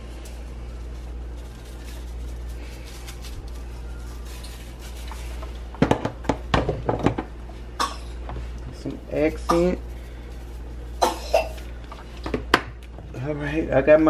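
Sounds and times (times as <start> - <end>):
steady low hum: 0.0 - 14.0
kitchen handling noise: 5.7 - 7.4.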